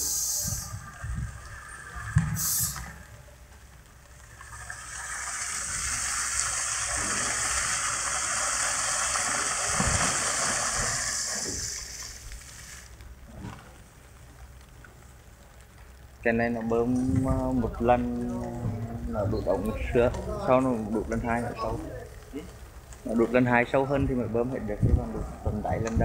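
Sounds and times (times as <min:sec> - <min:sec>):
compressed air blasting water: 0:00.0 - 0:00.8, 0:02.2 - 0:03.0, 0:05.4 - 0:12.8
short hiss of air: 0:00.0 - 0:00.8, 0:02.2 - 0:03.0, 0:07.0 - 0:12.9.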